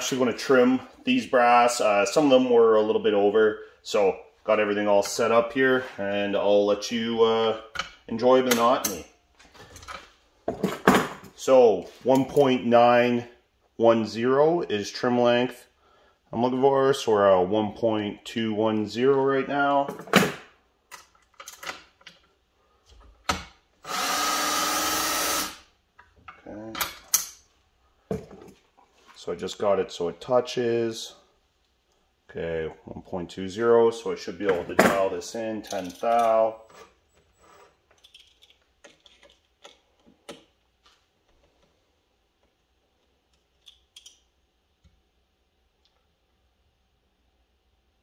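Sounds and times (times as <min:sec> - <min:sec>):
cordless drill spinning: 0:23.8 - 0:25.6
small clicks of handling: 0:43.3 - 0:44.2.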